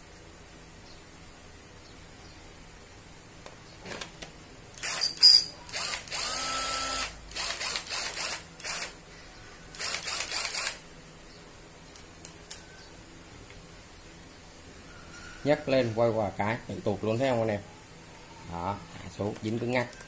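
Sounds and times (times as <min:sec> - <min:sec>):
cordless drill motor whining: 0:04.8 - 0:09.0, 0:09.7 - 0:10.8.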